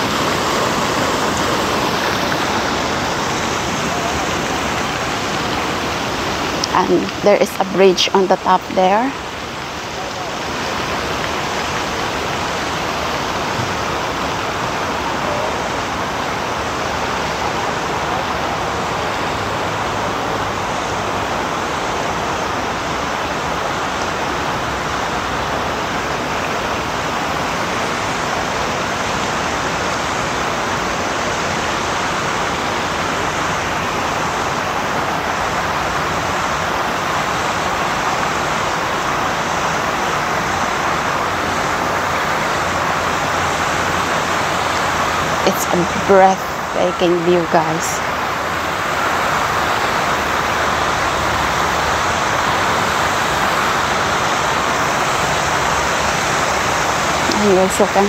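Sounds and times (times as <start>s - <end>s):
fountain jets splashing onto water: 0.0s - 58.0s.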